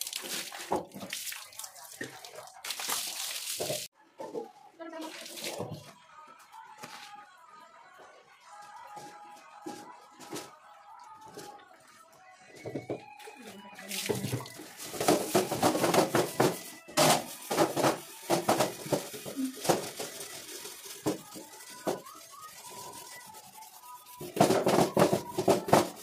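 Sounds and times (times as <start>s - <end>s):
steel wool scrubbing metal: 15.1s - 26.0s.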